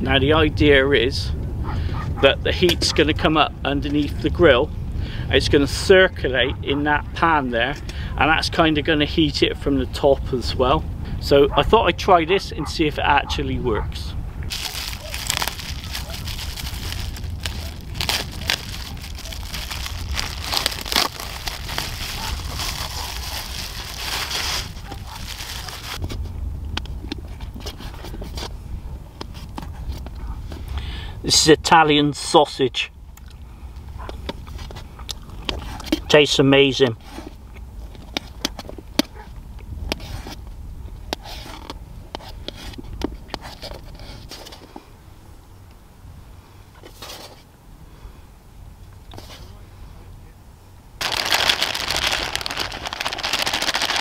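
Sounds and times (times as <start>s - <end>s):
plastic wrap crinkling and tearing: 14.5s - 26.0s, 51.0s - 54.0s.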